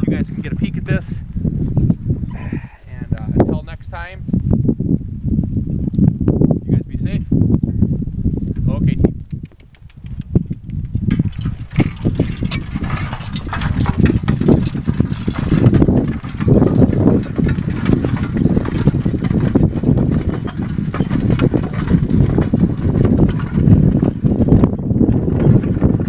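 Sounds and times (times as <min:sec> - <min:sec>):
horse hoofbeats: 0:09.0 - 0:26.0
harness chains clinking: 0:10.8 - 0:26.0.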